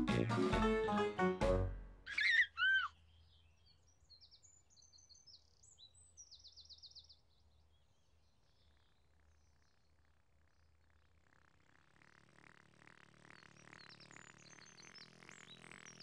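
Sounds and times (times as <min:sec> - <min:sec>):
baby giggling: 0:02.1 - 0:02.9
birds chirping: 0:02.1 - 0:07.0.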